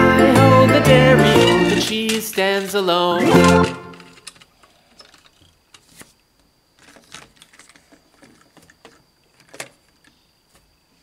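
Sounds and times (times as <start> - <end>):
plastic toys clicking and knocking: 1.3 - 6.2, 6.8 - 10.2.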